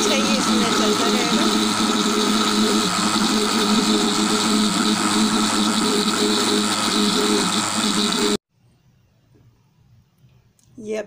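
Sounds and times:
electric blender running: 0:00.0 - 0:08.4.

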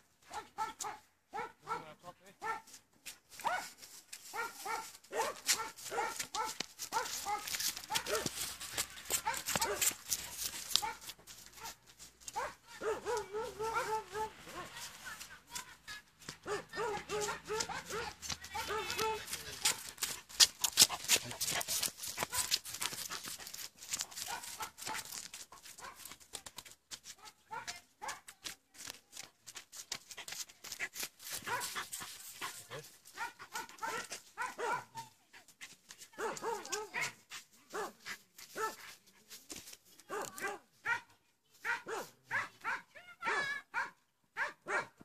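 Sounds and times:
dog barking: 0:00.3 - 0:02.8, 0:03.4 - 0:08.4, 0:09.2 - 0:10.0, 0:10.8 - 0:14.7, 0:16.4 - 0:19.9, 0:22.2 - 0:22.6, 0:24.2 - 0:25.2, 0:25.8 - 0:26.1, 0:27.2 - 0:28.3, 0:31.4 - 0:31.8, 0:33.1 - 0:35.1, 0:36.2 - 0:38.0, 0:38.6 - 0:38.8, 0:40.1 - 0:45.0.

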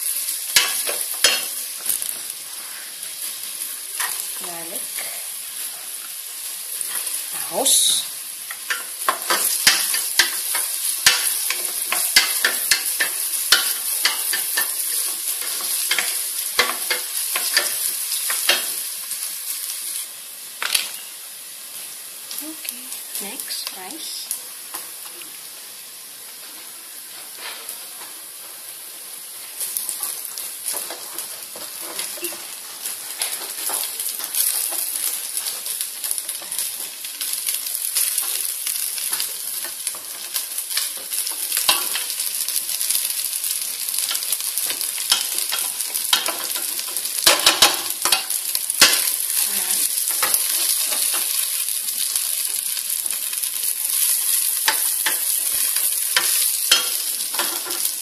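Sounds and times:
rice sizzling in oil: 0:00.0 - 0:58.0.

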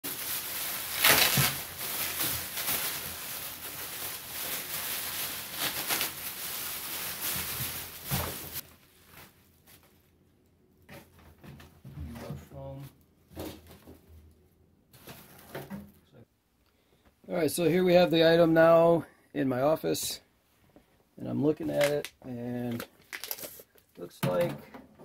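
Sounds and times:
plastic bag crinkling: 0:00.1 - 0:09.9, 0:21.7 - 0:24.0.

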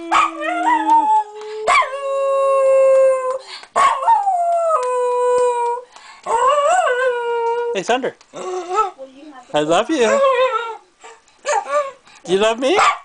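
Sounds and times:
dog howling: 0:00.0 - 0:07.8, 0:09.9 - 0:10.8.

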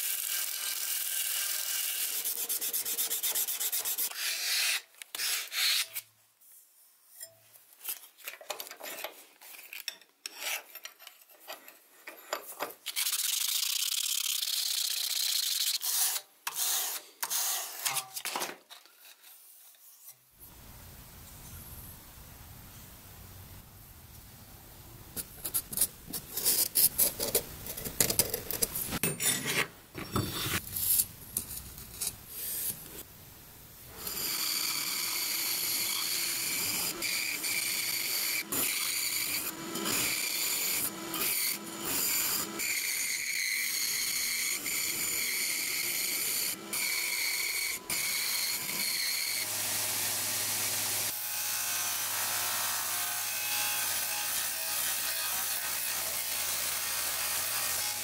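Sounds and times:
bandsaw cutting: 0:00.0 - 0:06.0, 0:33.9 - 0:58.0
scraping strokes on a block: 0:01.7 - 0:06.0.

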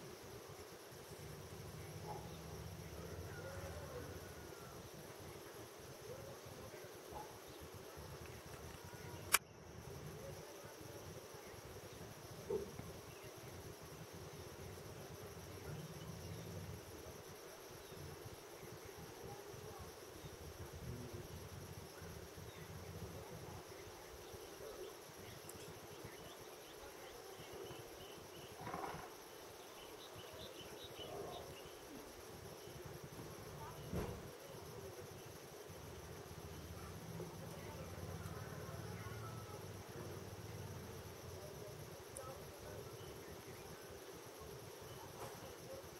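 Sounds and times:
insects chirping chorus: 0:00.0 - 0:45.9
sharp click: 0:08.2 - 0:09.5.

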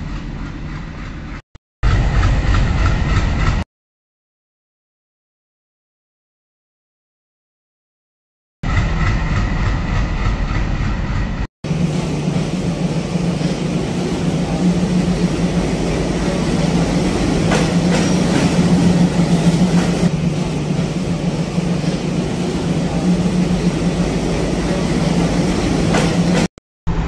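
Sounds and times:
diesel locomotive engine drone: 0:00.0 - 0:03.6, 0:08.6 - 0:27.0
train coaches rolling past: 0:08.7 - 0:27.0.

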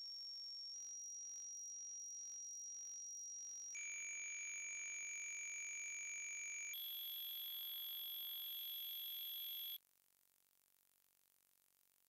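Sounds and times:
steady pure sine tones: 0:00.8 - 0:09.8.

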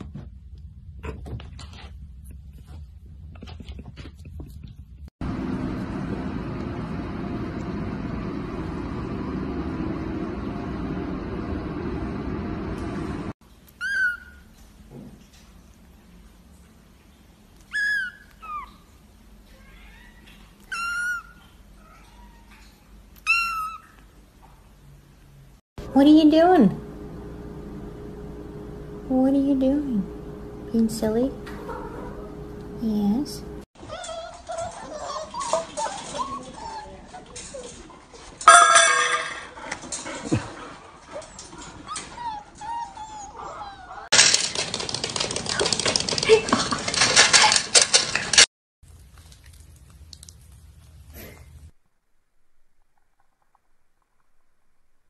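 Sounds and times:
puppies whining: 0:13.8 - 0:14.5, 0:17.6 - 0:24.1, 0:31.5 - 0:32.8, 0:33.9 - 0:37.9, 0:41.1 - 0:44.1.

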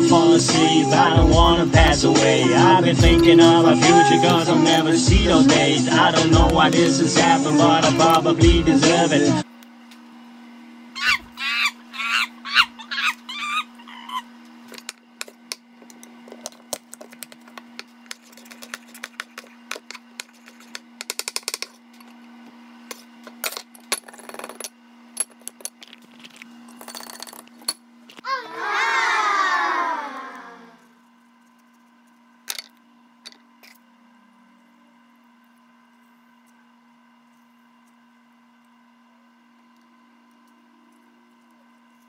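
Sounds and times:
loud falling vocal sound: 0:28.2 - 0:30.8.

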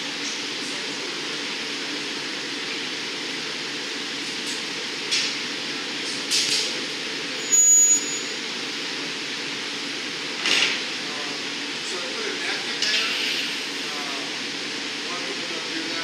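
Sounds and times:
furnaces and exhaust fans roaring: 0:00.0 - 0:16.0
steel tools working glass: 0:07.4 - 0:08.4.

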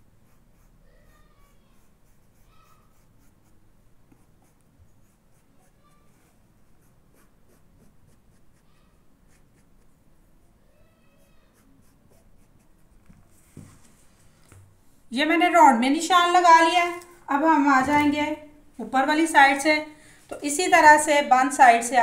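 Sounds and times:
chalk scratching on fabric: 0:00.2 - 0:09.9, 0:11.2 - 0:13.8.

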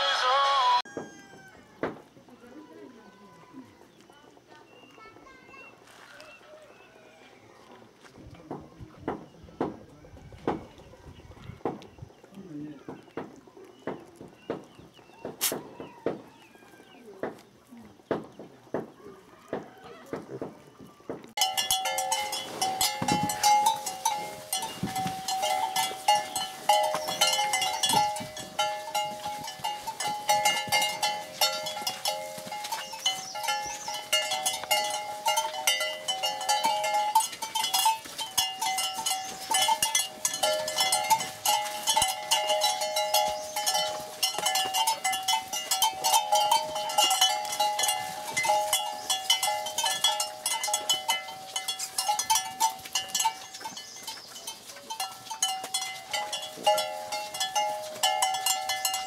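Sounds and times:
cattle bells clanking: 0:21.4 - 0:59.0.

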